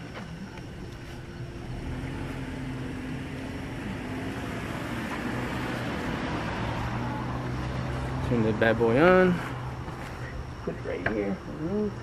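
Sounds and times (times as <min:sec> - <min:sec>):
car engine running: 0:01.3 - 0:09.8.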